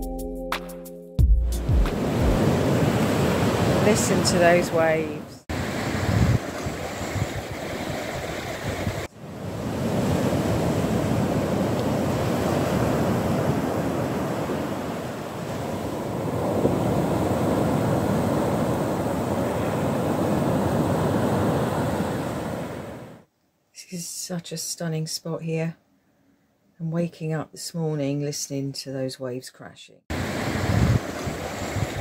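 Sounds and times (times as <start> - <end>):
waves breaking on sandy beach: 1.8 - 23.2, 30.1 - 32.0.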